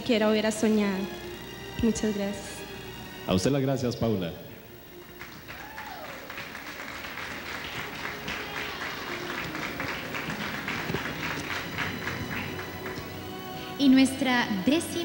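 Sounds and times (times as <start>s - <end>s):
audience applauding: 4.8s - 14.2s.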